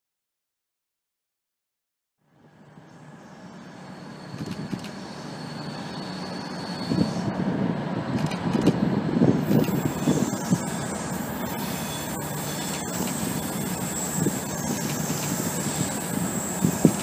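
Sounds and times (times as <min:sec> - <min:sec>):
locomotive low rumble: 0:02.2 - 0:17.0
high wheel squeal: 0:02.9 - 0:07.5, 0:09.3 - 0:17.0.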